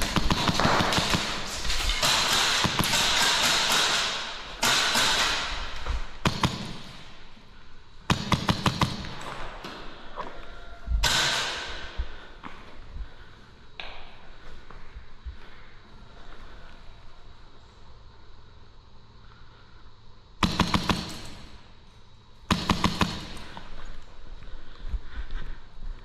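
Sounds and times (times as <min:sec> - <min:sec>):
airsoft gun shots in a hall: 0:00.0 - 0:07.2, 0:08.1 - 0:10.0, 0:11.0 - 0:12.0, 0:20.4 - 0:21.7, 0:22.5 - 0:23.7.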